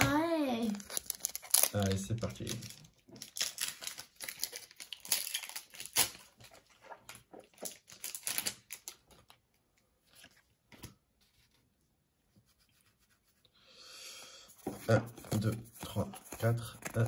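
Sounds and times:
foil pack crinkling: 0.7 - 9.4.

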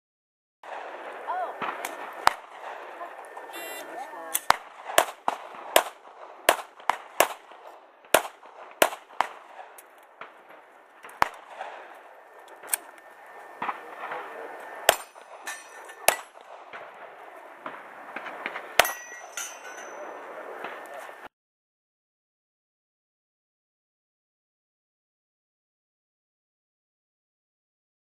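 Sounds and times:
handgun shots: 4.3 - 7.5, 8.1 - 9.9, 14.9 - 16.9.

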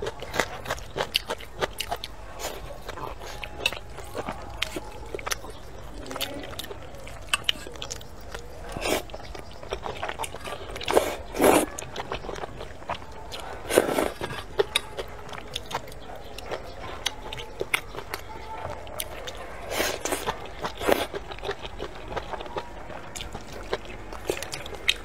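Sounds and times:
wet chewing and lip-smacking: 0.0 - 25.0
slurping noodles: 8.7 - 9.2, 10.1 - 12.4, 13.3 - 14.6, 19.6 - 21.1.

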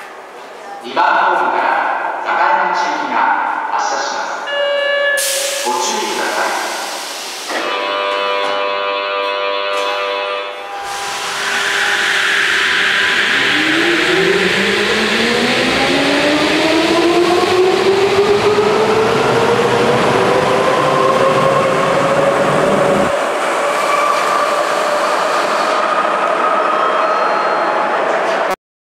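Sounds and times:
rumble of passing train cars: 5.6 - 28.5
train motor whine rising: 10.8 - 26.5.

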